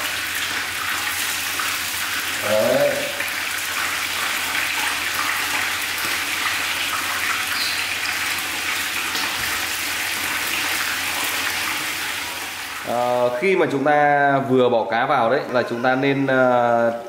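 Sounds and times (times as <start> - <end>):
fish sizzling in hot oil: 0.0 - 13.4.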